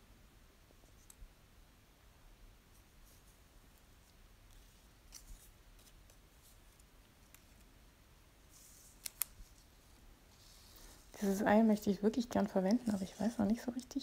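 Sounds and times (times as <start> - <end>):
paper rustling and sliding: 12.4 - 13.6.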